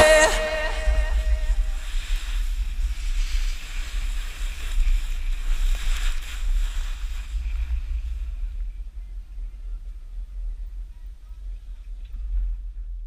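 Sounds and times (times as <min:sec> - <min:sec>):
snowboard hissing on snow: 0:00.0 - 0:08.5
wind buffeting microphone: 0:00.0 - 0:13.0.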